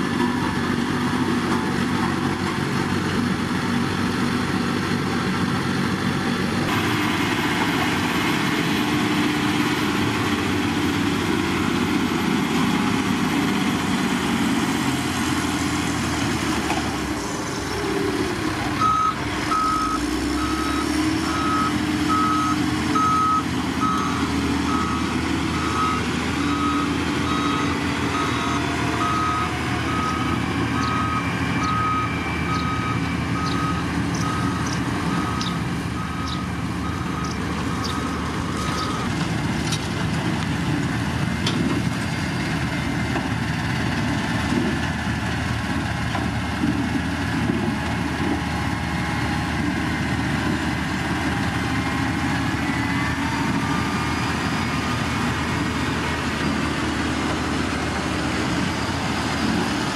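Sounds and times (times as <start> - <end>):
heavy diesel engines running: 0.0 - 59.9
reversing alarm beeping: 18.8 - 39.2, 51.4 - 56.6.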